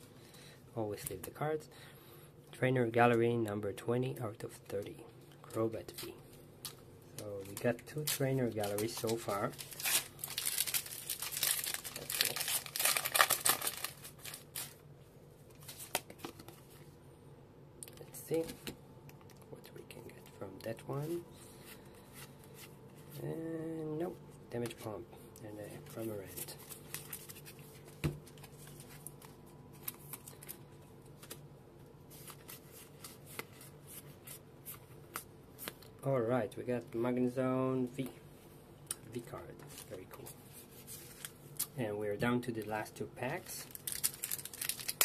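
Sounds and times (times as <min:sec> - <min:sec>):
foil wrapper crinkling and tearing: 0:07.2 - 0:14.8, 0:43.4 - 0:45.0.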